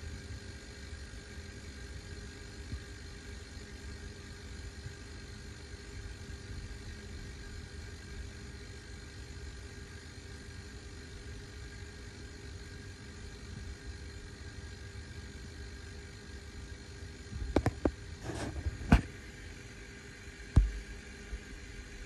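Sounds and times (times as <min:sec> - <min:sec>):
compressor humming: 0:11.7 - 0:22.0.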